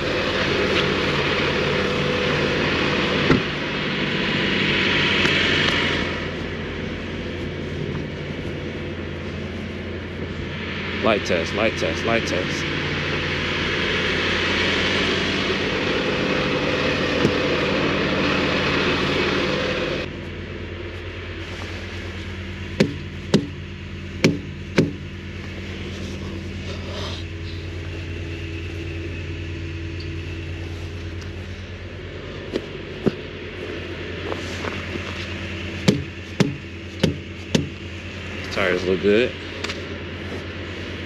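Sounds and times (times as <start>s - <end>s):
loud rushing noise: 0.0s - 20.1s
diesel truck engine idling: 0.0s - 41.0s
sharp knocks: 22.8s - 23.6s, 24.2s - 25.0s, 35.8s - 37.8s.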